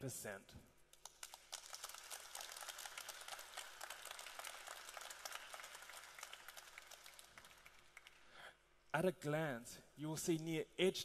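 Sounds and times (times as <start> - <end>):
audience applauding: 1.1 - 8.3.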